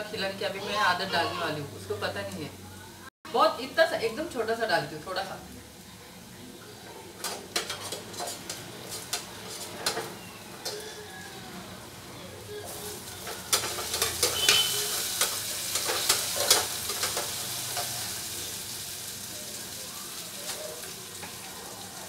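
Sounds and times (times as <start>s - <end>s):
food sizzling in a pot: 0.0s - 22.0s
metal spoon scraping a pot: 7.2s - 11.1s, 12.7s - 17.9s.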